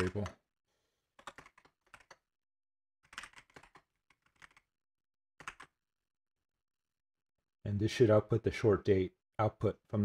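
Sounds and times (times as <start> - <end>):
faint keyboard typing: 0.0 - 0.3, 1.2 - 2.2, 3.0 - 4.6, 5.4 - 5.7.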